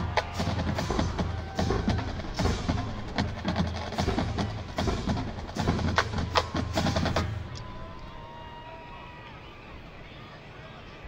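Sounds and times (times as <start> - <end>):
drumline playing percussion cadence: 0.0 - 8.3.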